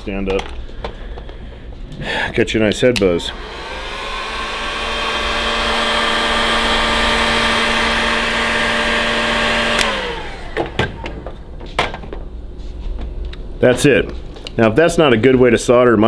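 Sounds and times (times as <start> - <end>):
heat gun fan whine: 0.0 - 15.2
heat gun switch click: 9.7 - 11.2.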